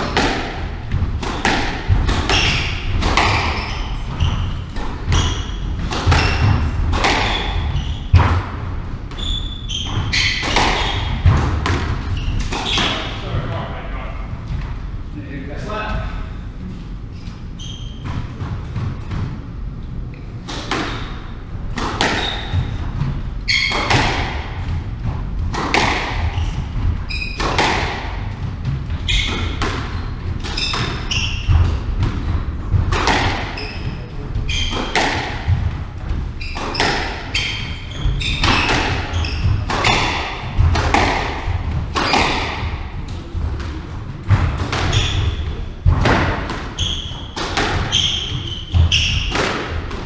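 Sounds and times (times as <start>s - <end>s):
squash ball cracking off rackets: 0.0s - 8.5s, 21.7s - 22.7s, 25.4s - 26.3s, 29.2s - 33.6s, 36.5s - 37.4s, 38.2s - 45.2s
shoes squeaking on wooden floor: 2.1s - 8.4s, 9.1s - 13.2s, 17.1s - 18.8s, 22.0s - 25.1s, 25.7s - 43.5s, 44.2s - 49.4s.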